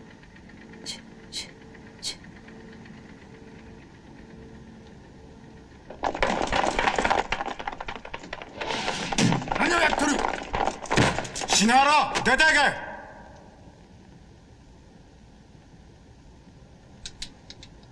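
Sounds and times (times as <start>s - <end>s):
clatter of knocks and scraping: 5.9s - 11.7s.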